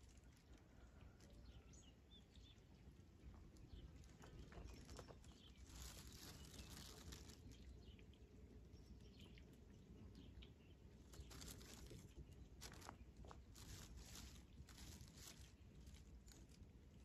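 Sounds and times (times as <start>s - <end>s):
soft bird chirps: 0.0s - 17.0s
faint rustling: 3.4s - 7.7s, 10.9s - 17.0s.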